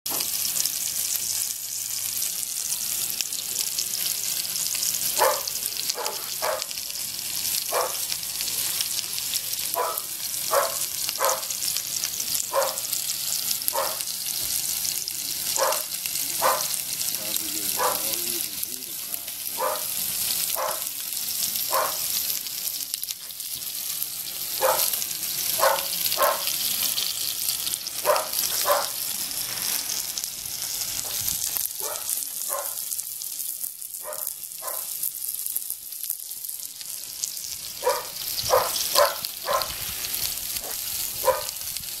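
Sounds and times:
chicken sizzling on grill: 0.1 - 42.0
dog barking: 5.2 - 6.8, 7.7 - 8.1, 9.7 - 11.6, 12.5 - 12.9, 13.7 - 14.1, 15.6 - 16.8, 17.7 - 18.2, 19.5 - 20.9, 21.7 - 22.1, 24.6 - 26.6, 28.0 - 29.0, 31.8 - 32.8, 34.0 - 34.9, 37.8 - 39.7, 40.6 - 41.6.

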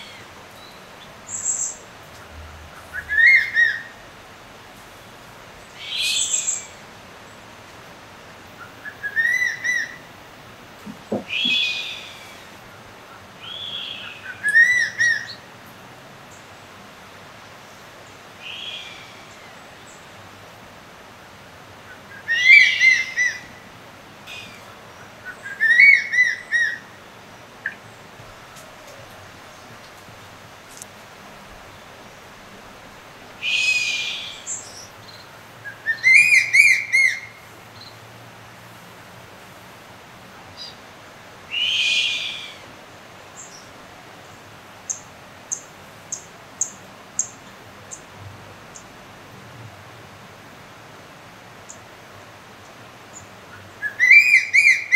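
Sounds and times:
eagle whistled calls: 2.9 - 3.9, 8.8 - 10.0, 11.2 - 12.4, 22.2 - 23.4, 25.4 - 26.8, 33.4 - 34.9, 35.7 - 37.3, 41.5 - 42.6, 53.8 - 54.9.

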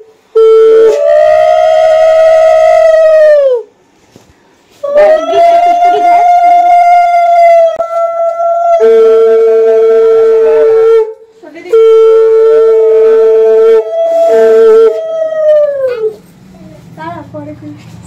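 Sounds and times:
conch shell high note: 0.0 - 3.4, 4.8 - 15.2
conch shell low note: 0.0 - 3.4, 4.9 - 15.2.

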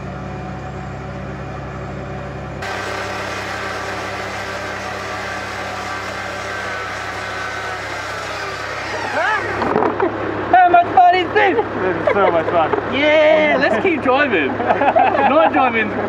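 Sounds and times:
electric winch whining: 2.6 - 10.5.

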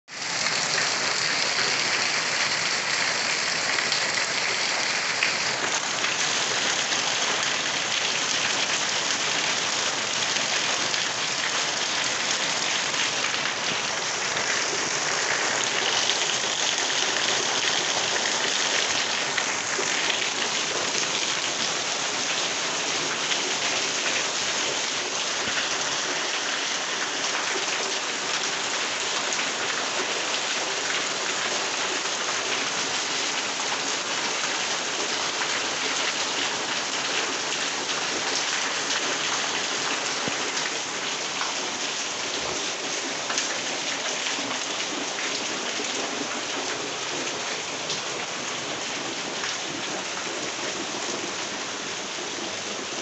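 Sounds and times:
heavy rain on a metal roof: 0.0 - 53.0
water streaming off roof: 0.1 - 53.0.

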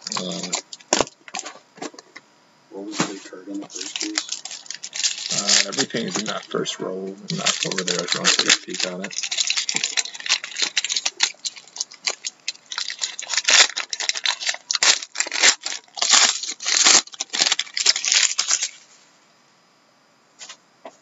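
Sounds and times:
foil wrapper crinkling and tearing: 0.0 - 2.0, 3.0 - 6.7, 7.3 - 18.8.

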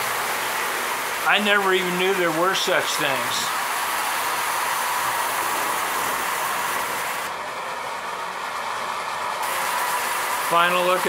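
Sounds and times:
toy train rolling on metal track: 0.0 - 7.3, 9.4 - 11.0
toy train motor whirr: 0.0 - 7.4, 9.4 - 11.0
hiss: 9.4 - 11.0.

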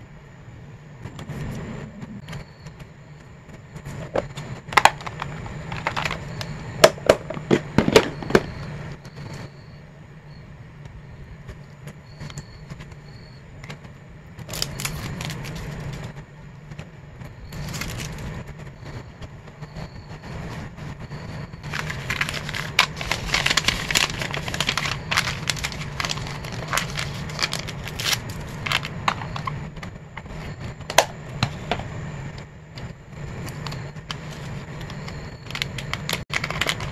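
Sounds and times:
steady low hum: 0.0 - 36.9
plastic packaging crinkling: 4.8 - 6.3, 14.4 - 16.1, 17.5 - 18.3, 21.6 - 29.6, 33.6 - 36.9.

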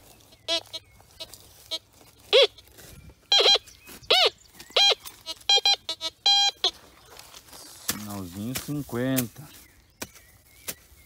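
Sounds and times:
metal detector target tones: 3.3 - 6.7.

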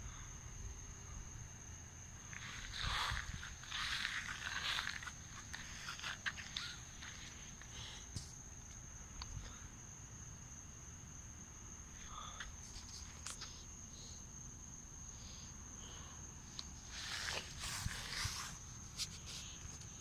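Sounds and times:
night insects trilling: 0.0 - 20.0
footsteps on grass: 2.3 - 7.4.

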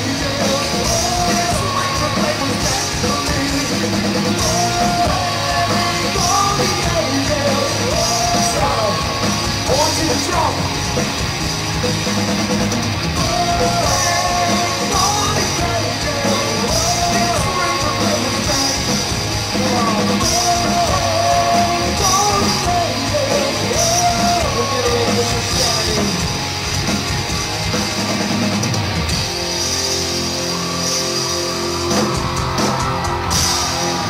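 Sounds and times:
man singing: 0.0 - 10.7, 13.2 - 26.4
drum kit with cymbals: 0.0 - 34.0
electric guitar: 0.0 - 34.0.

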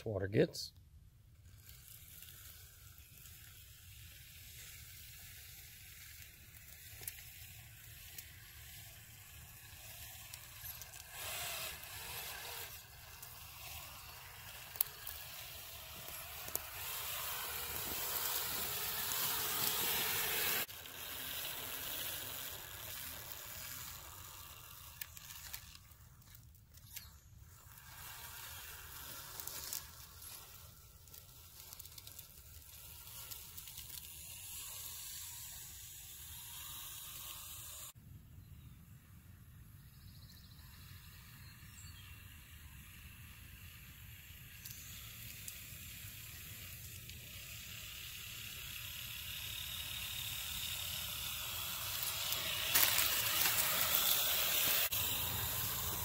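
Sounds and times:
tires splashing through wet grass: 48.9 - 56.0.

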